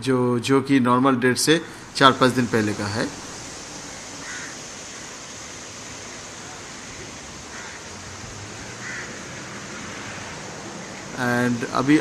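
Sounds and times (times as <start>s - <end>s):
seaside ambience hiss: 1.4s - 12.0s
faint crow caws: 3.0s - 11.8s.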